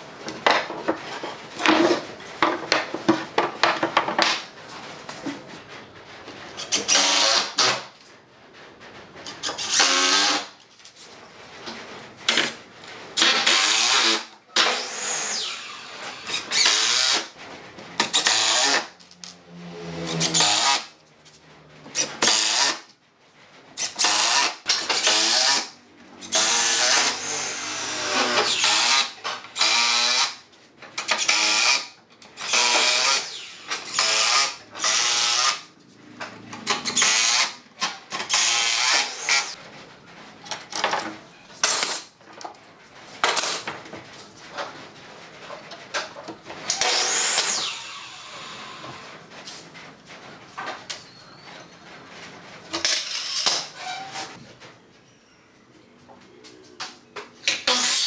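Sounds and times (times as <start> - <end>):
cordless drill driving screws: 13.2 - 17.2, 26.3 - 30.3.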